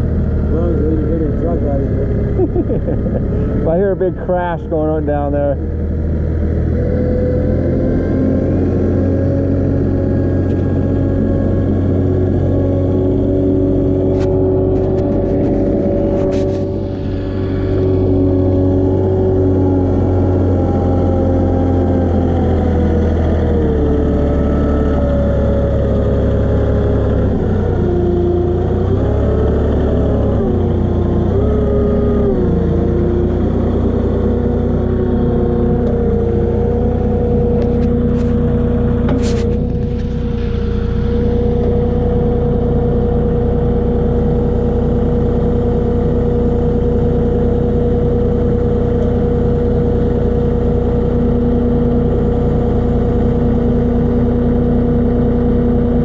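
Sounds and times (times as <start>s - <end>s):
forklift engine running: 0.0s - 56.0s
short clatter: 39.0s - 41.8s.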